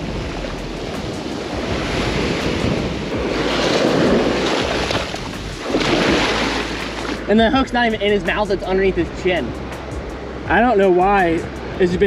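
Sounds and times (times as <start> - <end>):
small waves breaking on sand: 0.0 - 7.3.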